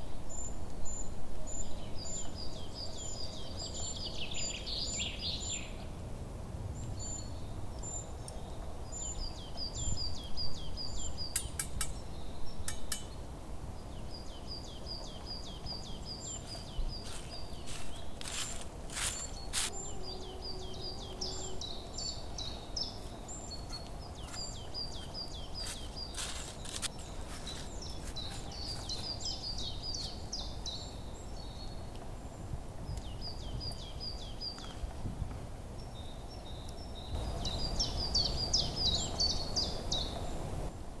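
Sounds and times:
songbirds chirping: 0.0 - 40.9
sharp clicks or snaps: 11.3 - 12.0.

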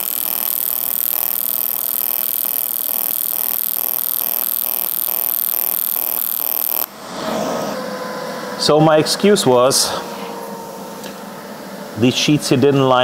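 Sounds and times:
welding arc buzzing: 0.0 - 7.0.

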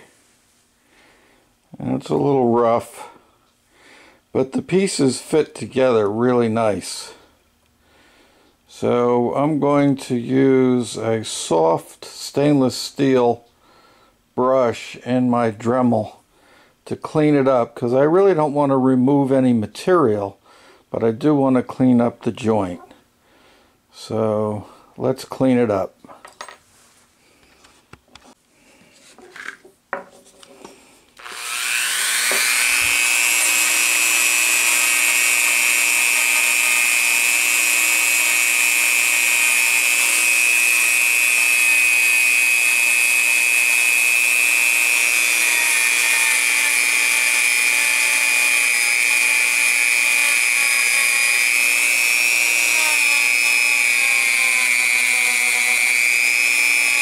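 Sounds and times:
rotary tool wire brush whine: 31.2 - 57.0.

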